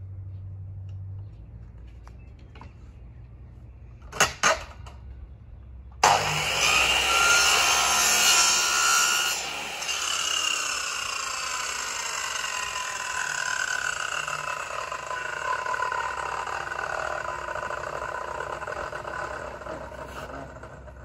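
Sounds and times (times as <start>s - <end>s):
mitre saw cutting wood: 6.0s - 21.0s.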